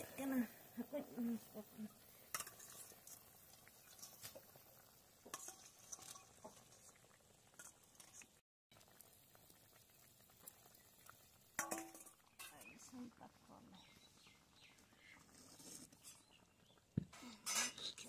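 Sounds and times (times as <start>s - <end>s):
spatula scraping metal strainer: 2.3s - 3.2s, 5.3s - 6.6s.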